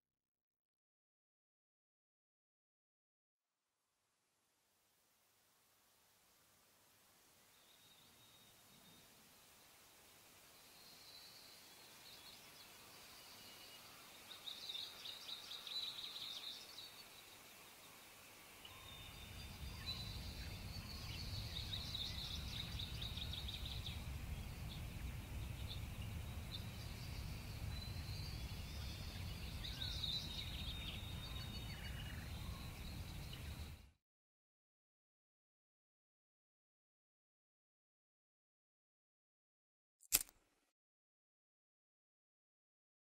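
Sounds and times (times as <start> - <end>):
small birds chirping: 7.4 - 33.9
steady low rumble: 19.0 - 33.8.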